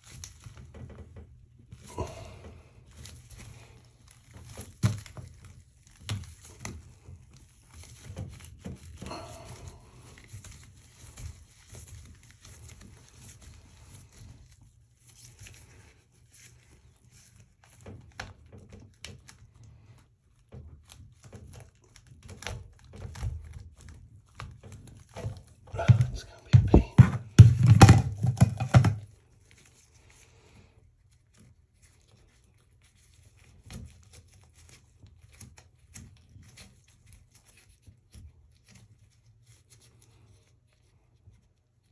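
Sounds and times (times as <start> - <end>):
plastic flange knocking and scraping pipe: 0.0 - 1.8, 17.1 - 29.3.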